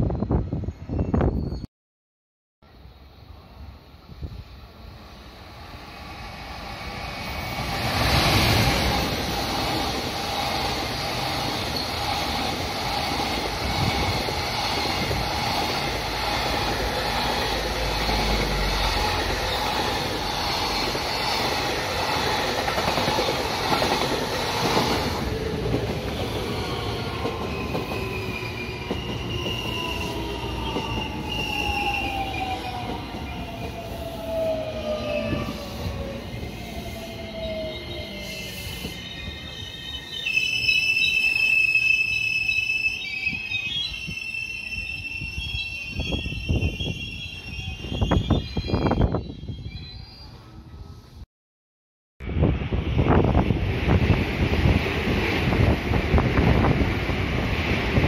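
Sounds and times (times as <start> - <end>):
freight train passing: 2.7 - 51.2, 52.2 - 58.0
train wheel rumble: 6.4 - 36.1, 52.2 - 58.0.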